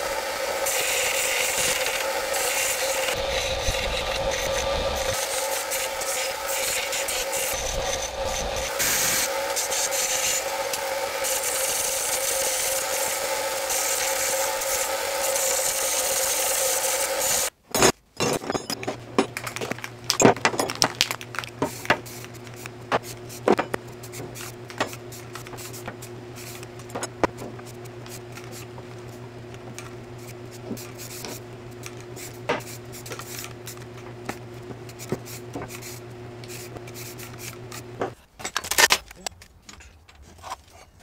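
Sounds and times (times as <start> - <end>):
steady low hum: 3.0 - 11.3, 17.5 - 38.2
spray can hissing: 8.7 - 17.4
metal parts clinking: 17.8 - 21.3.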